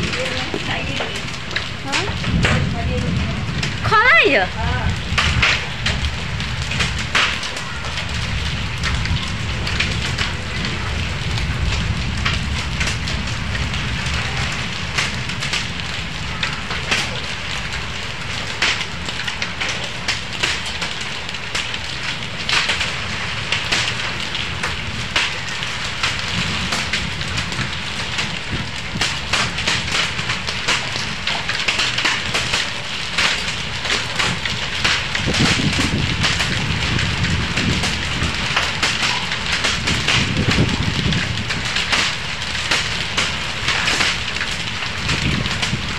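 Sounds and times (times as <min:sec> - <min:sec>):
low rumble: 0:00.0 - 0:16.8
hailstones ticking: 0:00.0 - 0:45.9
rain and hail pelting ground: 0:00.0 - 0:45.9.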